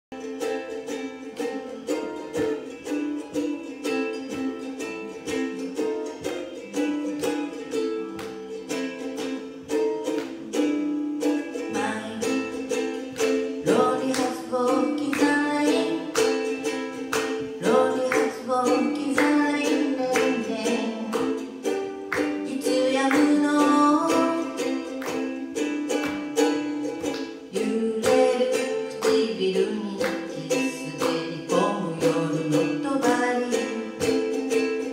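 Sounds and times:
ukulele strumming: 0:00.1 - 0:34.9
woman singing: 0:11.6 - 0:25.2, 0:27.4 - 0:34.4.

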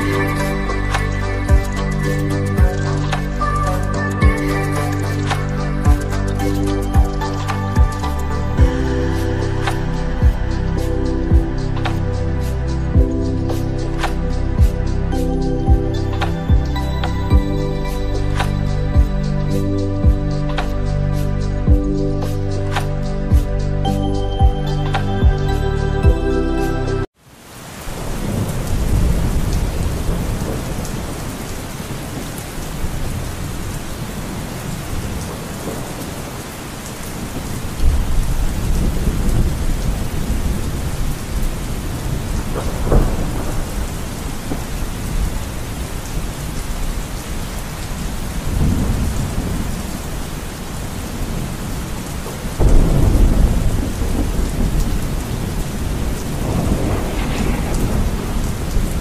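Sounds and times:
rain falling on wet grass: 0:00.0 - 0:25.5, 0:27.1 - 0:59.0
low rolling thunder: 0:27.9 - 0:36.3, 0:37.2 - 0:59.0.

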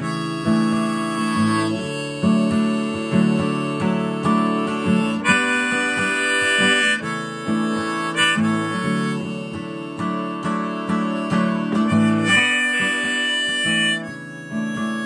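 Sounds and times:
harmonica playing: 0:00.0 - 0:15.0
strummed acoustic guitar: 0:00.0 - 0:15.0.

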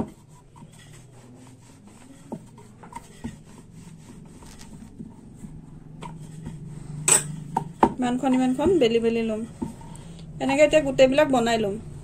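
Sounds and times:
rolling pin rubbing on dough: 0:00.0 - 0:11.6.

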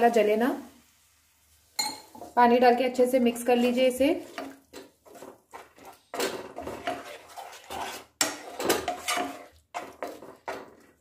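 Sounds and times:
spatula scraping a frying pan: 0:03.2 - 0:11.0.

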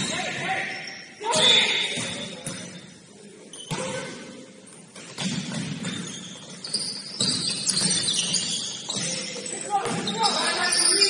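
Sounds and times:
sneaker squeaks on floor: 0:00.0 - 0:02.9, 0:03.5 - 0:04.1, 0:04.7 - 0:11.0
basketball and feet thudding: 0:05.0 - 0:10.4.

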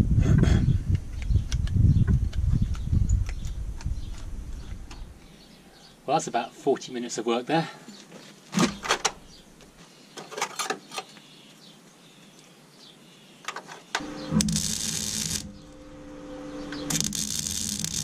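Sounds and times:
arc welder crackling: 0:14.0 - 0:18.0
welder low steady hum: 0:14.0 - 0:18.0.

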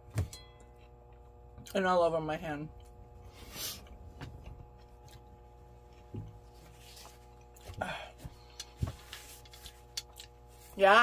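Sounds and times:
faint steady hum: 0:00.0 - 0:11.0
soft chewing: 0:03.8 - 0:08.8, 0:09.4 - 0:10.8.

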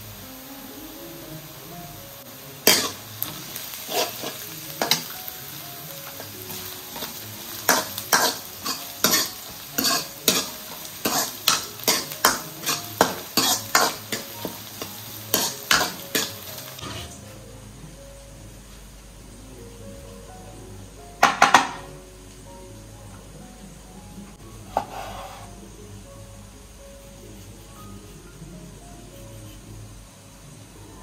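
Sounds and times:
onions sizzling in a pan: 0:00.0 - 0:23.2, 0:23.8 - 0:31.0
steel ladle scraping a pan: 0:02.7 - 0:05.1, 0:06.5 - 0:17.2, 0:24.7 - 0:25.6.

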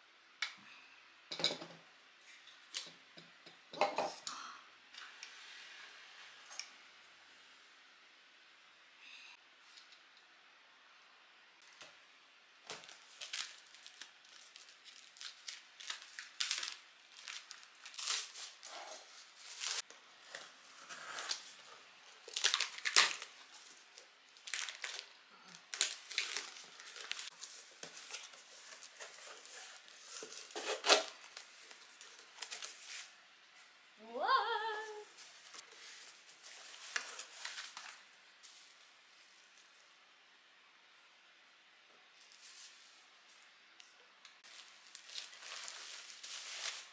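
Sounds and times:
packing tape ripping: 0:12.7 - 0:18.7, 0:19.4 - 0:23.4, 0:24.4 - 0:31.4
cardboard and bubble wrap crinkling: 0:12.7 - 0:33.2, 0:34.8 - 0:39.7, 0:44.4 - 0:46.9.

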